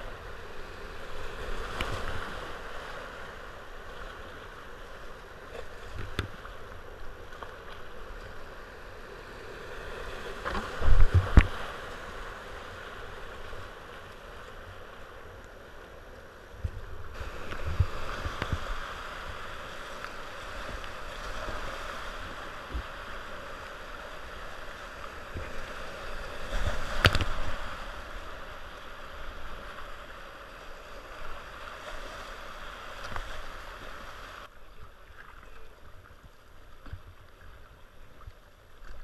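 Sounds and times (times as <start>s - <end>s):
calm water lapping: 0.0s - 39.0s
water splashing camera: 26.9s - 27.5s.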